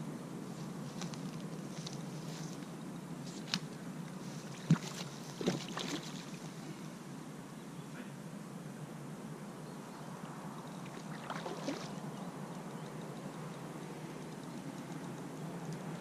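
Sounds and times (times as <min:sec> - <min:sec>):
fish splashing and thrashing: 0:04.5 - 0:06.4, 0:10.9 - 0:12.0.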